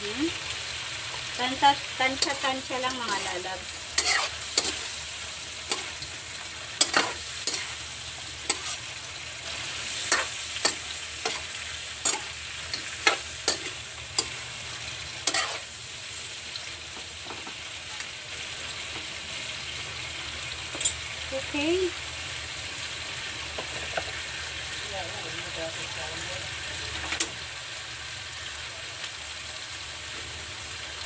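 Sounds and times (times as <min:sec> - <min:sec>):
shrimp sizzling in oil: 0:00.0 - 0:31.0
metal spoon clinking against pan: 0:12.0 - 0:14.4.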